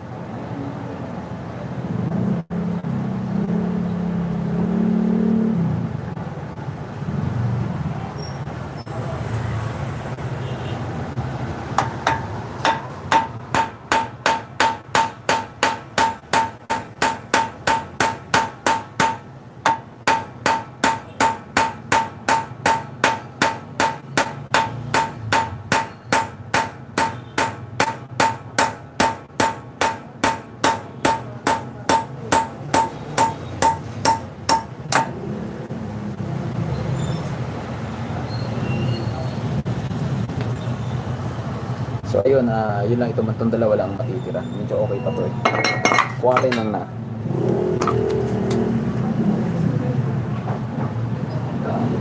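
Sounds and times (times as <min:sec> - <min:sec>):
hammer on steel: 0:11.8 - 0:35.2, 0:45.4 - 0:46.8.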